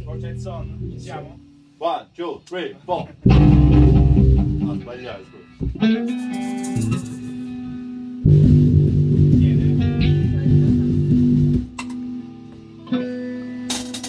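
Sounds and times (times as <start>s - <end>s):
electric bass guitar: 0.0s - 1.4s, 3.2s - 13.8s.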